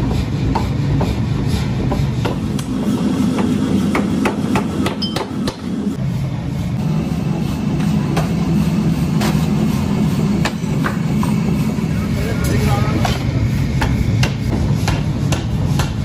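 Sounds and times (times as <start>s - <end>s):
machine low rumble: 0.0s - 16.0s
power hammer striking steel: 1.8s - 5.8s, 10.4s - 11.5s, 12.9s - 16.0s.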